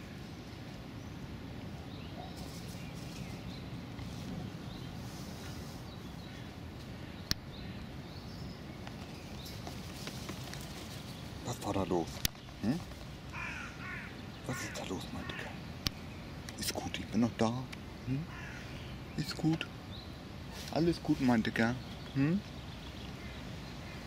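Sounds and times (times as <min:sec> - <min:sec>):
outdoor background noise: 0:00.0 - 0:24.0
crow rustling at denim: 0:02.2 - 0:07.0, 0:08.9 - 0:14.7, 0:20.5 - 0:22.0.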